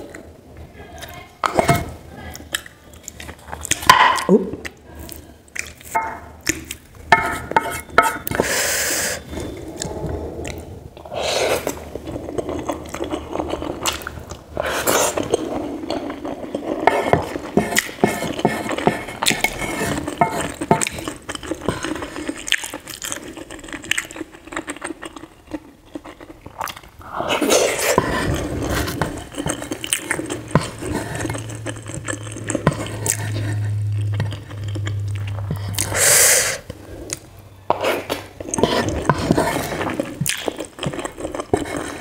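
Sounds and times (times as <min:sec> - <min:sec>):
wet chewing: 0:01.1 - 0:08.5, 0:09.4 - 0:42.0
wooden spatula scraping a pan: 0:07.1 - 0:08.6, 0:16.8 - 0:20.8.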